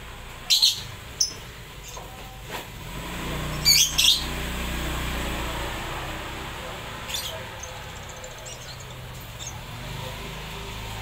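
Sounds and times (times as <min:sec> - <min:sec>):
bird chirping: 0:00.4 - 0:02.4, 0:03.5 - 0:04.4, 0:06.9 - 0:10.5.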